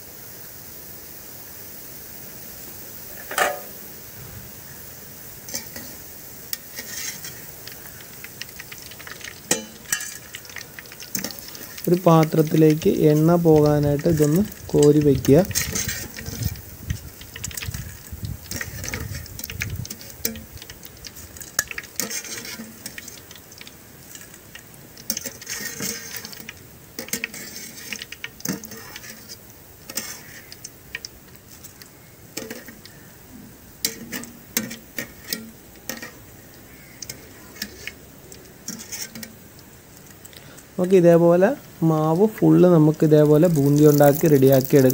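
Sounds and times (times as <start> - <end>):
oil sizzling: 0.0 - 44.9
wire skimmer scraping a metal pan: 5.5 - 7.5, 8.8 - 16.6, 17.3 - 23.3, 25.0 - 31.8, 32.4 - 32.8, 33.8 - 36.2, 37.0 - 38.0, 38.6 - 39.4.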